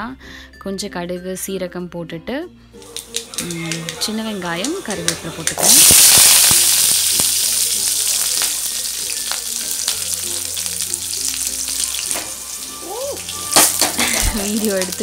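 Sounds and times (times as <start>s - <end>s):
food sizzling in hot oil: 2.8s - 15.0s
pan knocking on gas burner: 13.6s - 14.4s.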